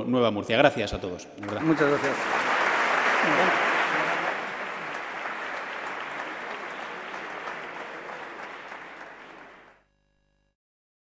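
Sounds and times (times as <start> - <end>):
audience applauding: 1.4 - 9.8.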